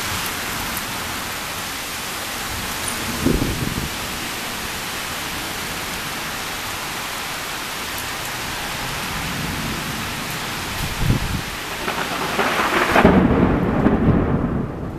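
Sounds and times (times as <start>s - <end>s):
heavy rain pouring: 0.0s - 14.9s
low thunder rumble: 2.5s - 4.3s, 9.1s - 14.9s.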